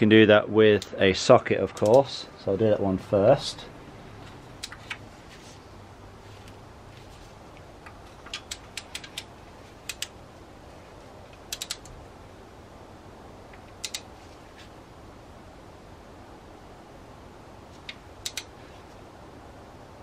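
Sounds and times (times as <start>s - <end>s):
ratchet wrench clicking: 11.5s - 11.9s.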